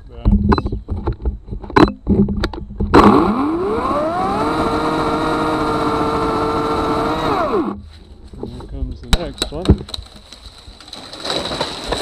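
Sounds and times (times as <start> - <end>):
electric chainsaw cutting log: 2.9 - 7.8.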